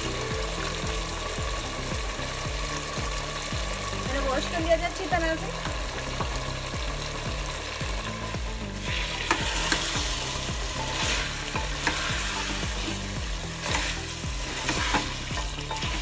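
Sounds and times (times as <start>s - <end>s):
food sizzling in a pot: 0.0s - 16.0s
spatula scraping metal pot: 8.8s - 16.0s.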